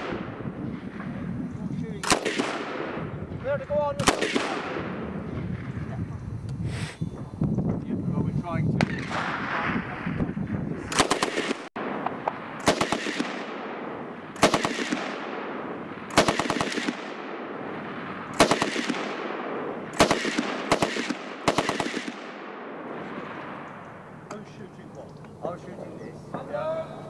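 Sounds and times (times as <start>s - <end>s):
machine gun bursts with echo: 2.0s - 5.6s, 10.8s - 23.5s.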